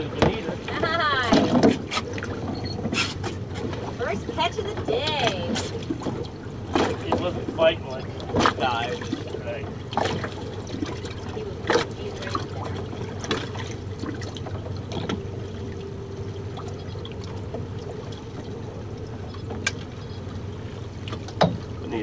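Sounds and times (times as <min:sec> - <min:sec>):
steady low hum: 0:00.0 - 0:22.0
water splashing and trickling: 0:00.0 - 0:22.0.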